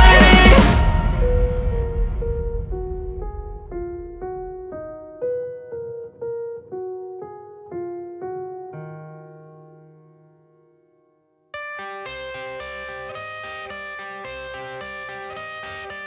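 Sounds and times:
piano melody: 0.0s - 16.0s.

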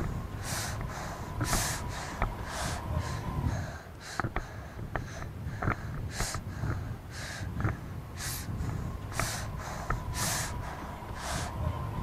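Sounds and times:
heavy breathing: 0.0s - 11.6s
low rumble: 0.0s - 12.0s.

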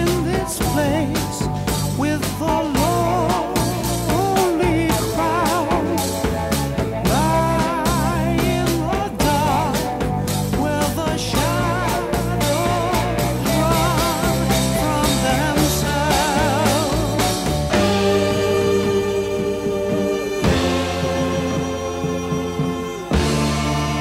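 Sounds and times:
rock music: 0.0s - 24.0s
sustained string chords: 15.8s - 24.0s.

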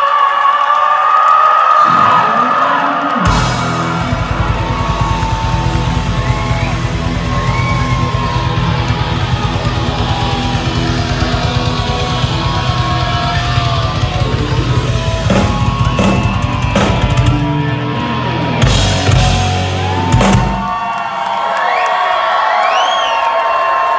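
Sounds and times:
live hard rock band: 1.9s - 21.0s
pounding drums: 3.1s - 21.2s
heavy full-band hits: 3.2s - 21.0s.

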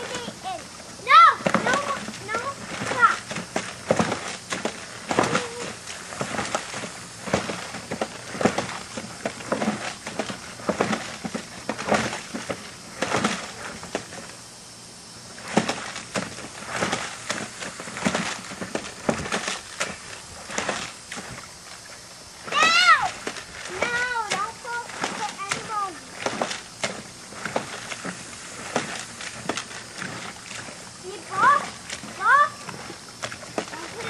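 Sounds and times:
toy mower clattering through mud: 1.2s - 14.3s, 22.5s - 34.0s.

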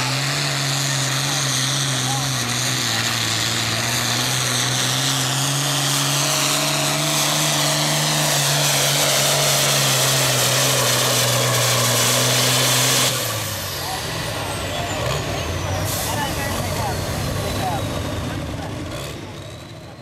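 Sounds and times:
high turbo whine: 0.0s - 20.0s
tractor diesel engine drone: 0.0s - 20.0s.

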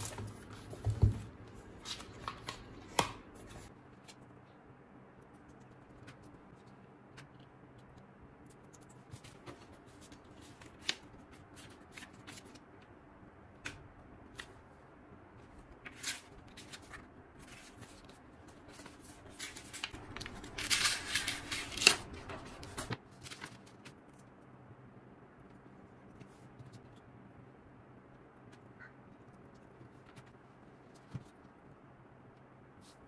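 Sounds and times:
book pages turning and rustling: 0.0s - 4.2s, 8.7s - 12.6s, 15.4s - 24.2s, 29.6s - 31.6s
paper crinkling: 15.8s - 24.3s.

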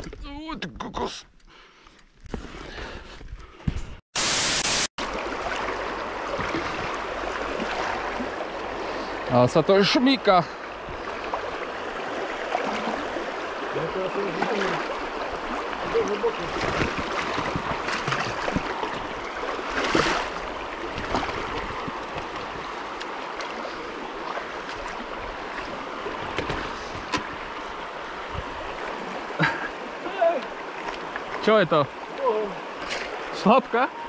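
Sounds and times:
water splashing around bike wheels: 5.0s - 28.6s.

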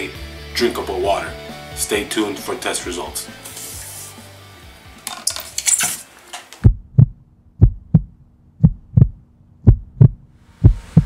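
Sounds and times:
heartbeat thumps: 6.6s - 11.0s.

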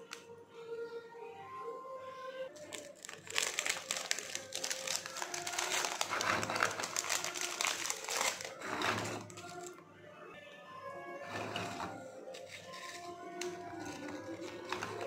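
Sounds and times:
plastic wrapper crinkling: 2.6s - 9.7s, 12.3s - 15.0s.

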